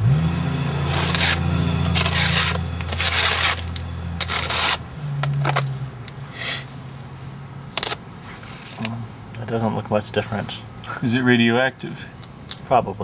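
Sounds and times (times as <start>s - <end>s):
electrical hum: 0.0s - 13.0s
battery scraping and rubbing: 0.9s - 6.2s, 7.7s - 8.9s.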